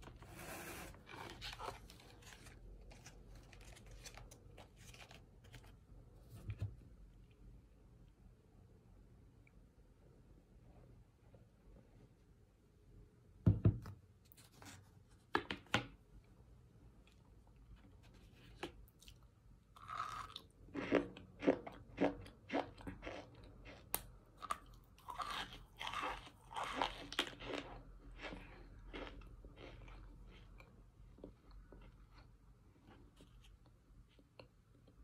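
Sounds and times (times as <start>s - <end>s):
crunchy chewing: 19.8s - 32.3s.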